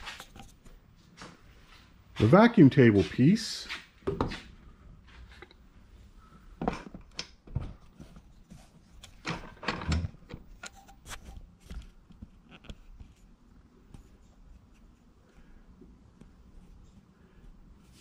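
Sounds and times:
soft knocks and thumps: 4.0 - 4.5
light ticks and rubs: 10.6 - 15.1.

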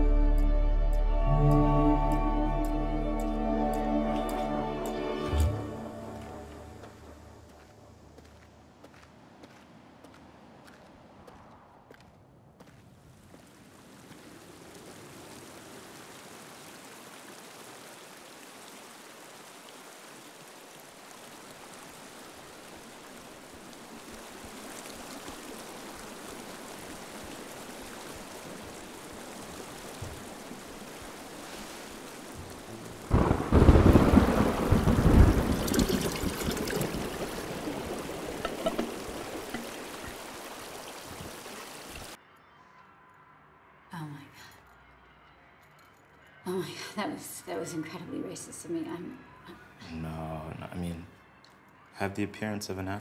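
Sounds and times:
soft rain hiss: 12.7 - 42.2
thunderclap with deep rumble: 32.4 - 39.8.

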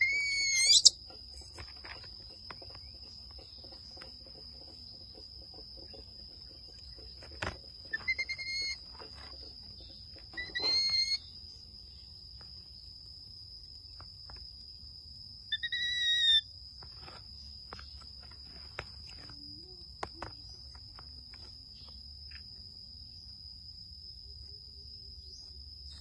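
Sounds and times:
baby monkey coo calls: 0.0 - 1.0, 7.9 - 9.0, 10.3 - 11.3, 15.5 - 16.4
high insect drone: 0.0 - 26.0.

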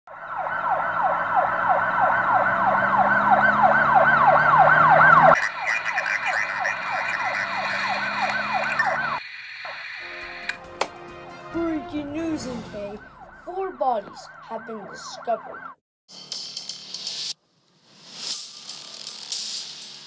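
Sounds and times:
emergency siren yelping: 0.1 - 10.5, 12.6 - 15.8.

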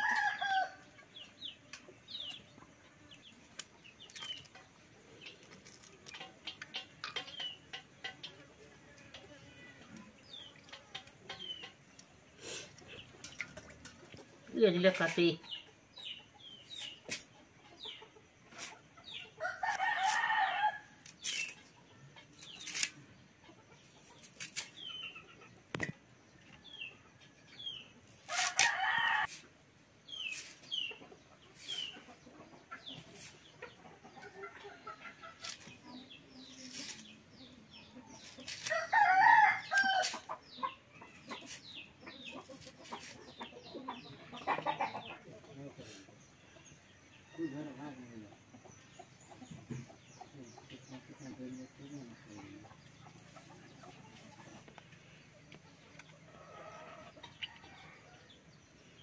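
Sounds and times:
rooster crowing: 0.0 - 0.8, 28.3 - 29.4, 38.7 - 40.1
chickens clucking and chirping: 0.0 - 59.0
onions being sliced on a blade: 22.4 - 23.0, 24.2 - 24.8, 38.2 - 38.8.

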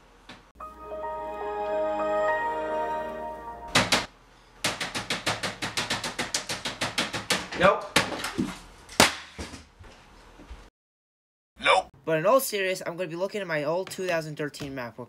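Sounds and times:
fast typing on laptop keyboard: 4.7 - 7.4.

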